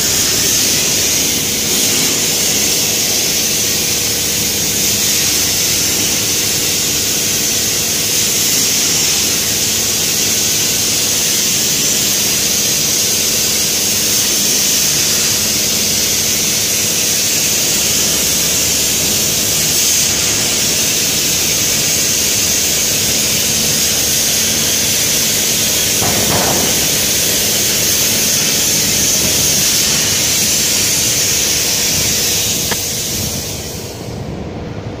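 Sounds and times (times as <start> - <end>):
sandblasting hiss: 0.0 - 34.2.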